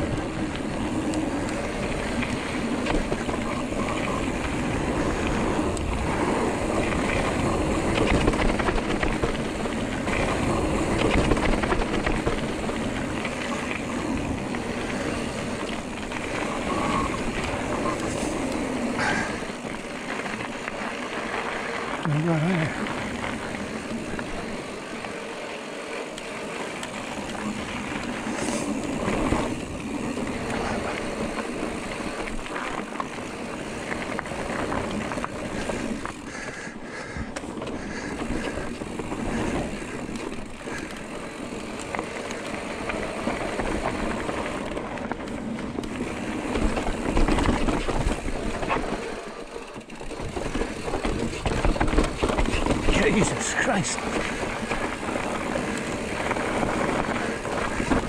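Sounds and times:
tyre and wind rush: 0.0s - 24.7s, 50.0s - 58.0s
bike rattling and knocking: 0.0s - 58.0s.

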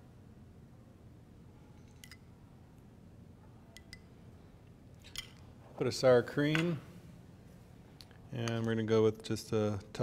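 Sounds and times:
metal spoon clicking on glass bowl: 3.8s - 4.1s.

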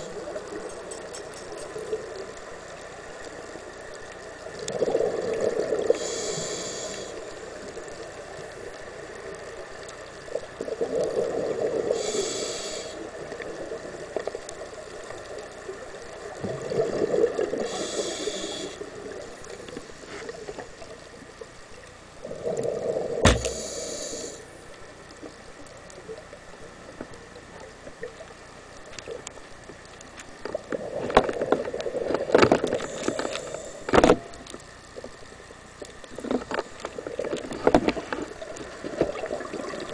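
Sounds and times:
gurgling exhaled bubbles: 4.4s - 6.2s, 10.6s - 12.2s, 16.3s - 18.4s, 22.2s - 24.0s, 38.3s - 39.9s
regulator inhale hiss: 5.8s - 7.6s, 11.8s - 13.2s, 17.5s - 19.0s, 23.0s - 24.6s, 32.8s - 34.1s
sharp knock: 23.2s - 23.6s.

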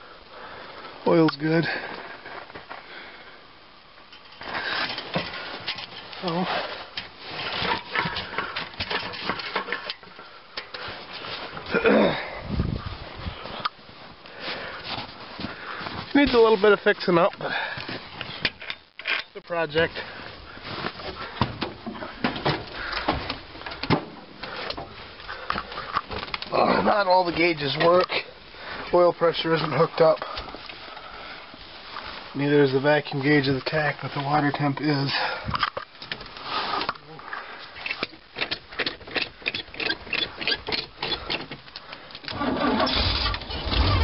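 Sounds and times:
knocks and clunks on steps: 20.9s - 26.4s
starter cranking engine: 42.3s - 44.0s.

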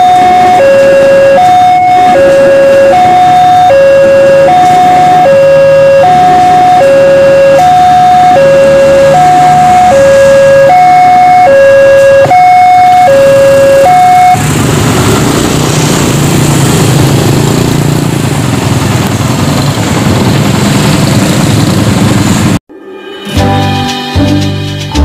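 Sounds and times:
level crossing alarm two tones: 0.0s - 14.4s
motorbike engines pulling away: 0.0s - 22.6s.

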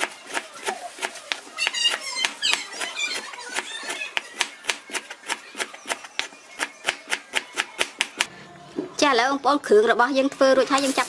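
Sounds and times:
high chirping squeaks: 1.5s - 4.6s.

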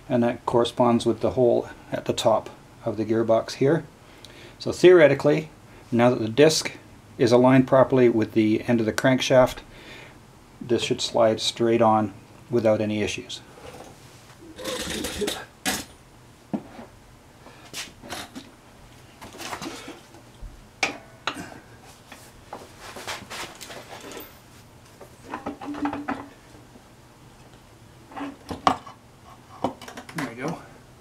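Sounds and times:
metal knocks clinks and scrapes: 23.0s - 24.5s.

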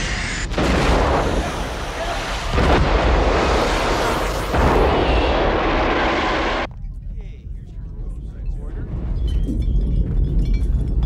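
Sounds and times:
explosive bursts: 0.0s - 6.7s
eruption rumbling rush: 0.0s - 11.0s.

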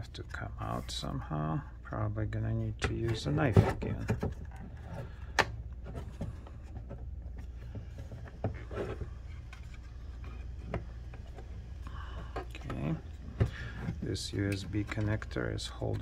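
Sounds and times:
steady low hum: 0.0s - 16.0s
plastic and metal parts handling: 2.8s - 16.0s.

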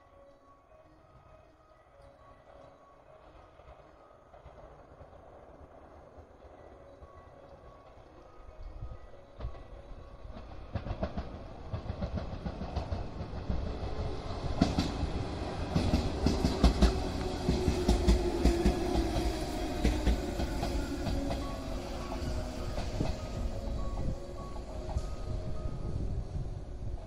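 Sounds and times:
train wheels clattering over rail joints: 9.4s - 25.3s.

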